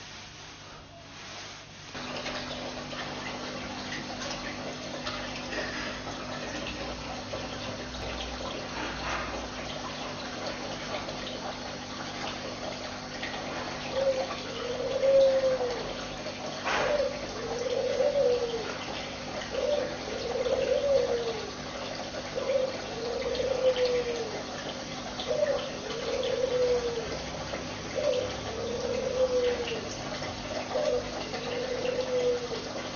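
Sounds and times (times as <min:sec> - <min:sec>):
aquarium water trickling: 0:00.0 - 0:32.9
bird cooing: 0:04.4 - 0:07.9, 0:13.4 - 0:32.9.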